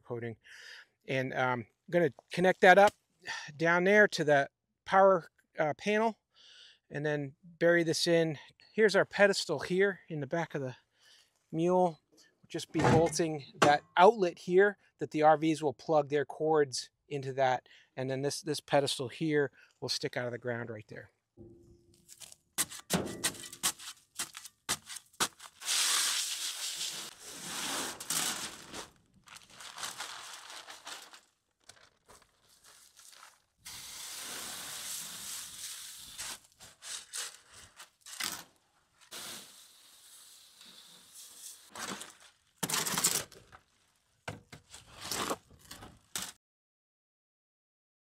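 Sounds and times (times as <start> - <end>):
shovel scraping metal wheelbarrow: 22.1 - 24.0, 25.6 - 28.9, 44.7 - 46.3
shovel tearing paper sack: 22.1 - 43.4, 44.7 - 46.4
dry mix pouring: 25.5 - 37.7, 39.0 - 42.3.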